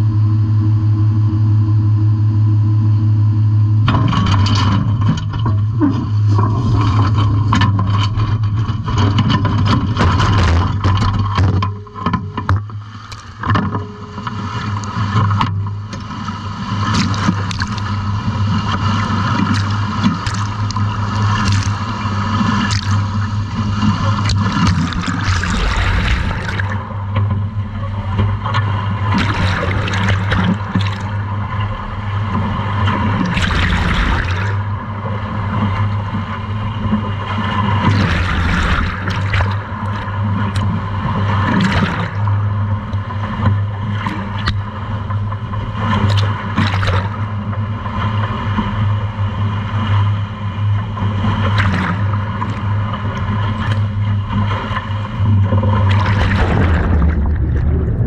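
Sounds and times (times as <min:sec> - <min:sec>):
boat engine drone: 0:00.0 - 0:58.0
metal dredge scraping and knocking: 0:03.9 - 0:12.6
water splashing and gurgling: 0:03.9 - 0:58.0.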